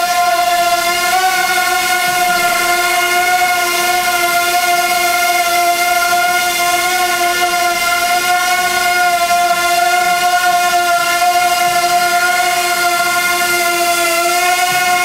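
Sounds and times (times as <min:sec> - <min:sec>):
drone propellers whining: 0:00.8 - 0:04.2.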